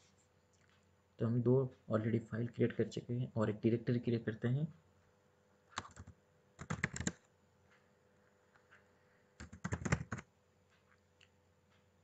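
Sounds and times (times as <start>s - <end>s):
computer keyboard typing: 5.7s - 7.2s, 9.4s - 10.3s.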